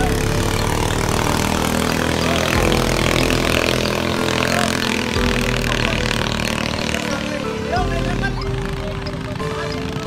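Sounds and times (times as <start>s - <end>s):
boat engine running hard: 0.0s - 10.0s.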